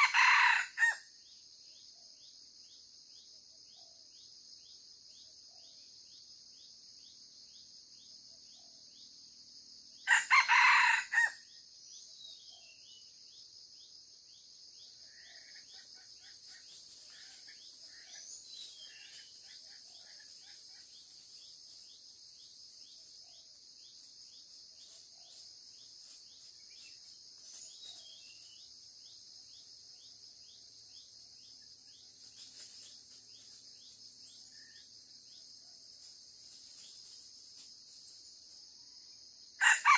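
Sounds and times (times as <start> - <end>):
junglefowl cock crowing: 0.0 - 1.0, 10.1 - 11.4, 39.6 - 39.9
high insect drone: 0.0 - 39.9.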